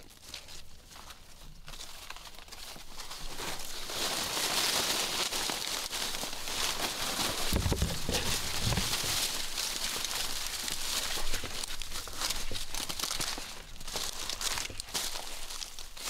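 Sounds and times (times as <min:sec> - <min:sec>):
dry corn stalks rustling: 0:00.0 - 0:16.0
footsteps: 0:06.6 - 0:16.0.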